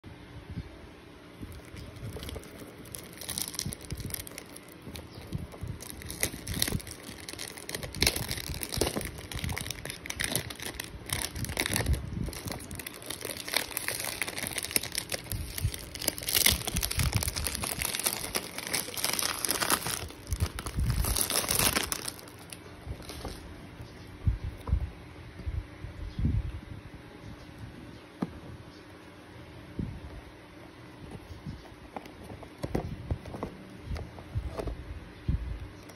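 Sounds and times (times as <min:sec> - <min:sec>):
cellophane crinkling and crackling: 0:01.4 - 0:23.6.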